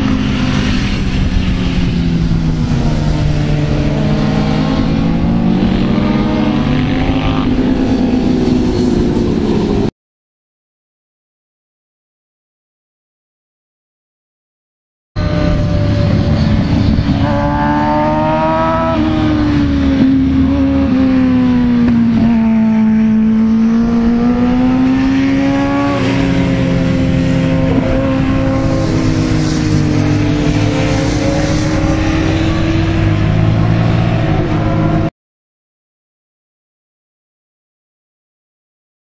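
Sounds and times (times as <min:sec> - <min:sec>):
motorcycle engines revving high: 0:00.0 - 0:09.9, 0:15.2 - 0:35.1.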